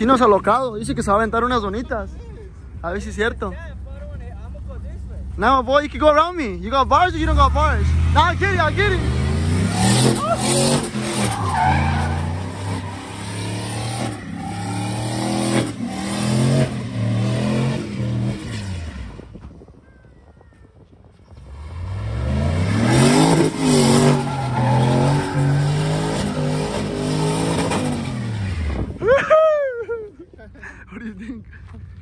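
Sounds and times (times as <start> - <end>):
tires spinning: 6.8 - 19.6, 21.3 - 29.9
pickup engine revving hard: 7.7 - 19.1, 21.5 - 29.0.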